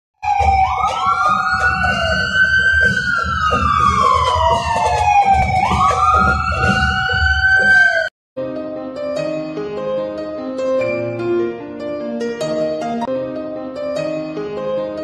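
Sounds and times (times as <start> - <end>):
siren wailing: 0.2 - 8.1
light piano music: 8.4 - 15.0.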